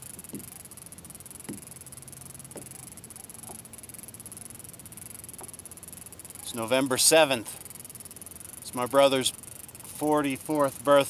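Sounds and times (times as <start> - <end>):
soft tapping: 2.5 - 2.8.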